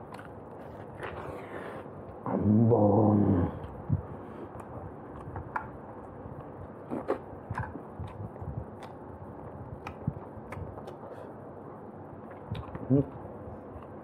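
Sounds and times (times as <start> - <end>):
chewing and mouth smacks: 0.0 - 1.3, 4.5 - 11.2, 12.2 - 14.0.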